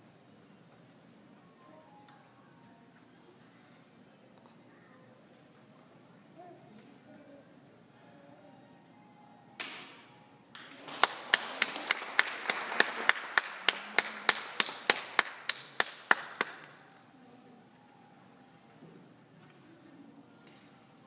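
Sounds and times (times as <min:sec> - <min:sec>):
audience applauding: 0:10.5 - 0:16.8
person clapping close by: 0:10.6 - 0:16.8.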